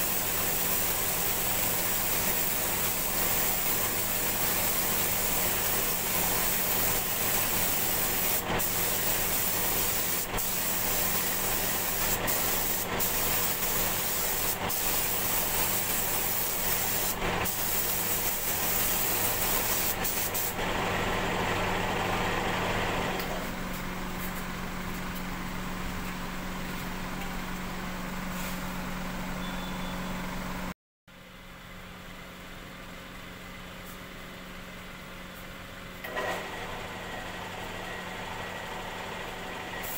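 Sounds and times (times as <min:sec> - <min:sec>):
spray gun hissing: 0:00.0 - 0:20.6.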